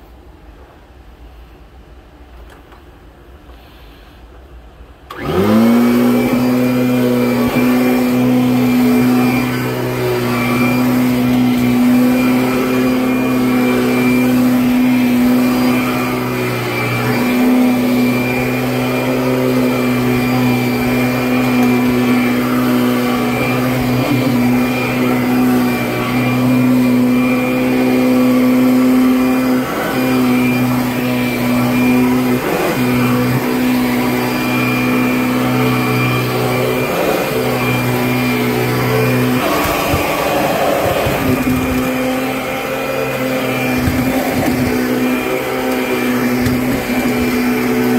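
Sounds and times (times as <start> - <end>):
vacuum cleaner motor humming: 5.1 - 47.9
vacuum cleaner knocks: 38.1 - 42.1, 43.5 - 47.9.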